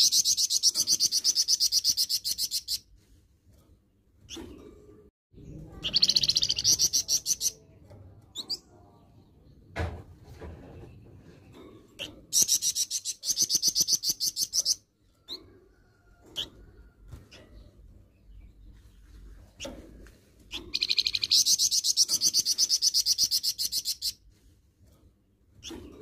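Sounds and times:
songbird rattling calls: 20.5 - 24.2.

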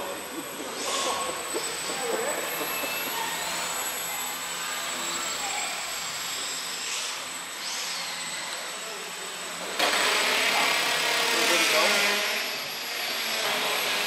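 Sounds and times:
electric model plane motor whining: 0.0 - 14.0.

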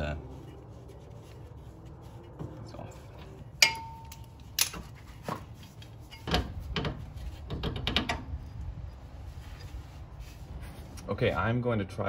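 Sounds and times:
metal clicks and knocks: 5.8 - 8.6.

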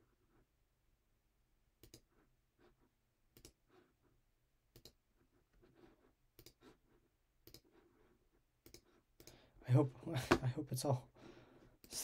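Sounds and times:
computer mouse clicks: 1.8 - 2.1, 3.3 - 3.6, 4.7 - 5.0, 6.3 - 6.7, 7.4 - 7.7, 8.6 - 9.4.

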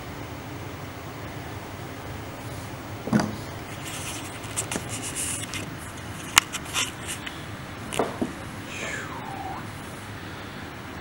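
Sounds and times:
steady low hum: 0.0 - 11.0
handling noises at a tabletop: 3.1 - 8.2
light rustles and taps: 3.1 - 8.4.

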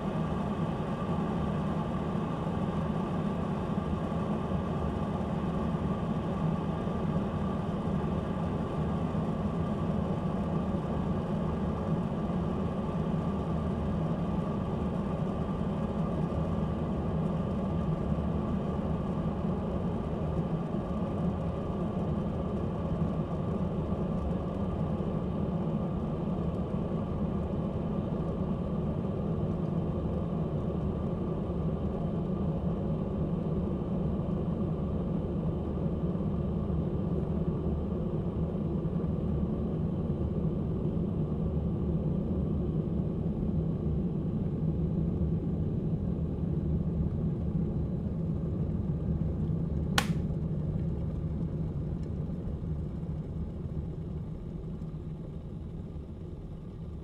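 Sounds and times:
kettle switch click: 50.0 - 50.2
kettle water boiling: 50.0 - 50.2.

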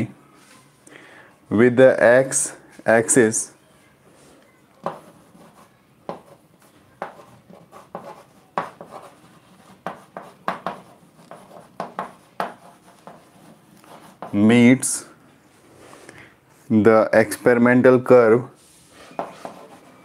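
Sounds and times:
chalk writing on a blackboard: 4.8 - 14.4, 18.6 - 20.0.

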